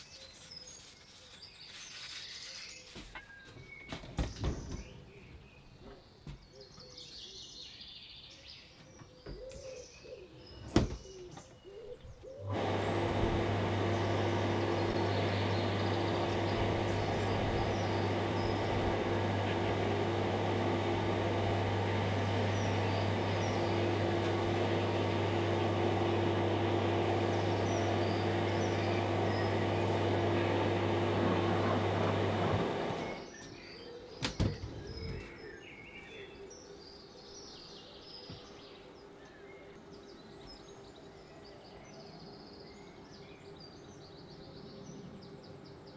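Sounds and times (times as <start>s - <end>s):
birds chirping faintly: 0.0s - 45.9s
electric motor hum: 12.3s - 33.3s.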